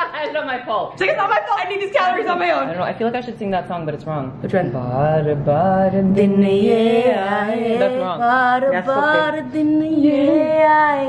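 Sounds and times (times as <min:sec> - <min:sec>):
woman singing unaccompanied: 0:04.9 - 0:11.0.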